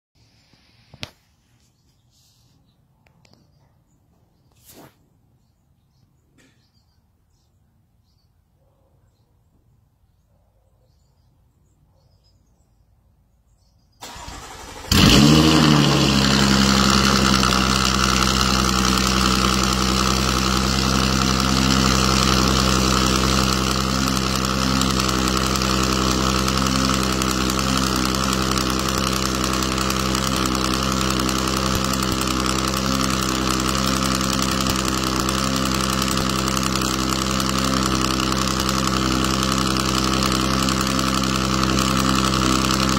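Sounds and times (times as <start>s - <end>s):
car engine starting and idling: 14.0s - 42.9s
starter motor cranking: 14.0s - 42.9s.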